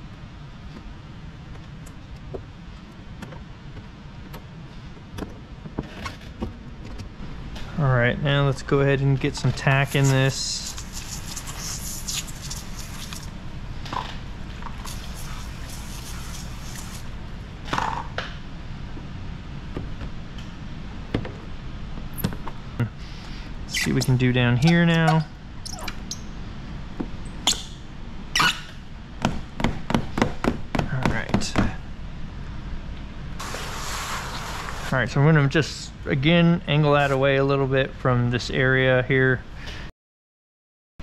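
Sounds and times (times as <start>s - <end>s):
steady low hum: 0.0s - 39.7s
squeegee scrapes and clicks: 9.4s - 13.3s, 14.6s - 17.1s.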